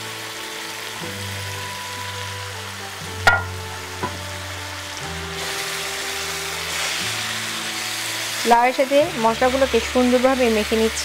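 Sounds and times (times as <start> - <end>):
food sizzling in a pan: 0.0 - 11.0
spoon clinking against pan: 3.3 - 4.2.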